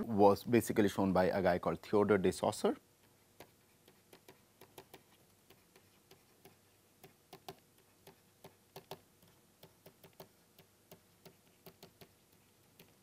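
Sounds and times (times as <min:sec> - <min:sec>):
stylus tapping on tablet: 0:03.4 - 0:13.0.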